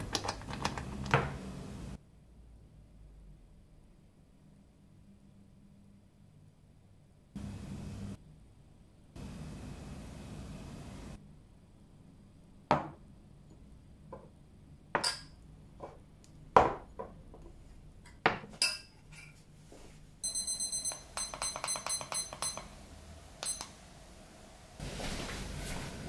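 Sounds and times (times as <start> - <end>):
spoon clinking against glasses: 20.2 - 22.7, 23.4 - 23.8
digital kitchen timer beeping: 20.2 - 22.8, 23.4 - 23.8.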